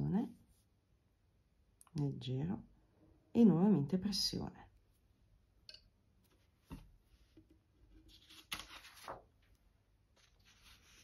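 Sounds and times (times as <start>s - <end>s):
paper sheets sliding across table: 10.2s - 11.0s.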